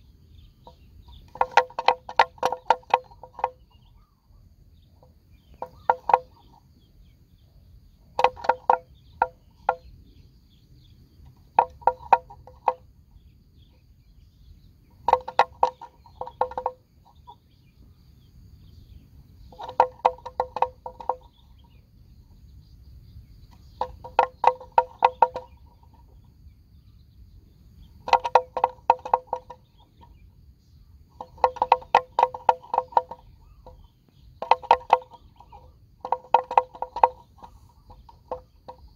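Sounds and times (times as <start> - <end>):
wooden bell clonking: 19.5 - 21.7.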